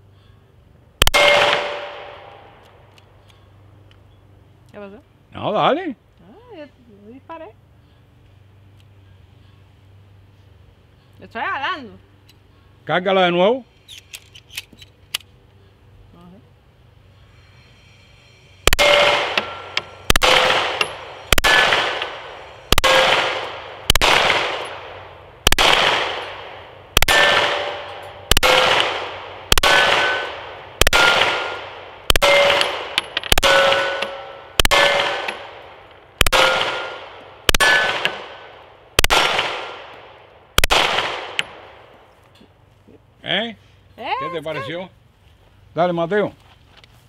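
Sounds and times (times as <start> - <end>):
pistol shots echoing: 1.0 - 2.3, 18.7 - 35.6, 36.2 - 40.0, 40.6 - 41.7.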